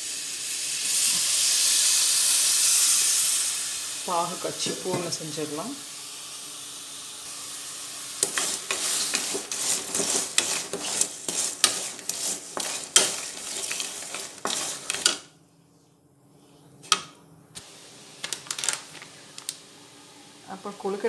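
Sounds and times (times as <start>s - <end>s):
steady sizzle: 0.0s - 15.4s, 17.6s - 21.0s
spoon scraping metal pan: 8.2s - 15.3s.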